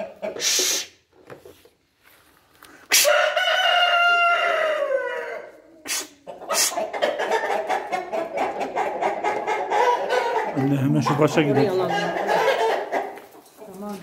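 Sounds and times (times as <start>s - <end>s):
hens clucking: 0.0s - 1.2s, 2.7s - 14.0s
rooster crowing: 3.0s - 5.5s.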